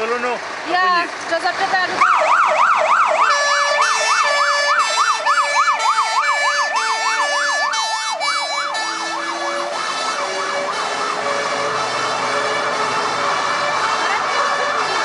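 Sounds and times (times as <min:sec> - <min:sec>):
fire engine siren yelping: 0:01.9 - 0:15.0
two-pitch siren tone: 0:02.1 - 0:11.8.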